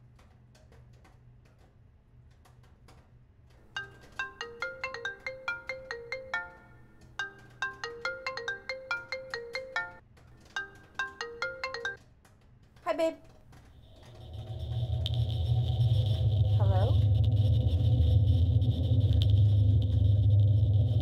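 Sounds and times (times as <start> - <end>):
phone ringtone: 3.8 - 12.0.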